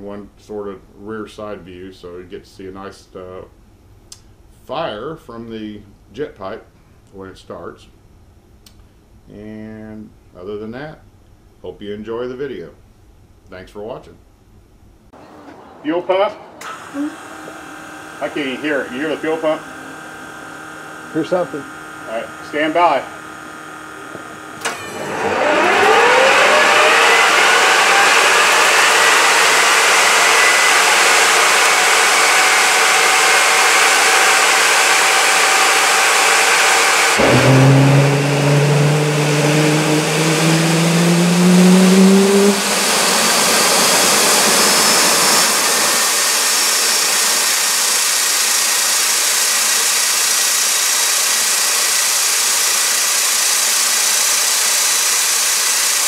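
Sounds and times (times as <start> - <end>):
jet engine starter whine: 16.6 - 56.0
jet engine roaring: 18.2 - 48.1.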